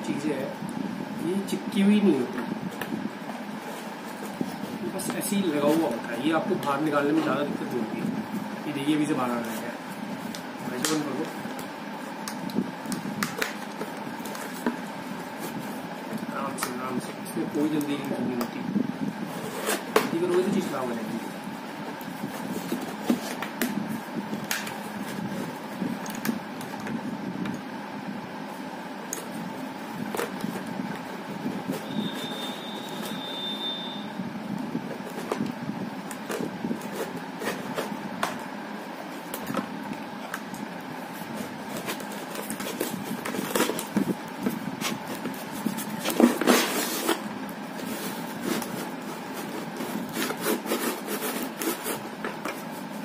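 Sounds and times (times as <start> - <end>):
steady background hum: 0.0 - 53.0
plastic helmet clicking and rubbing: 39.3 - 53.0.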